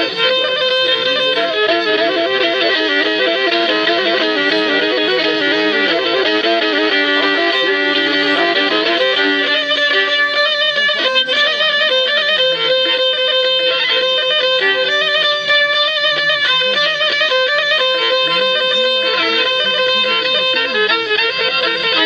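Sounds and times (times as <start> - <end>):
bowed fiddle folk tune: 0.0 - 22.0.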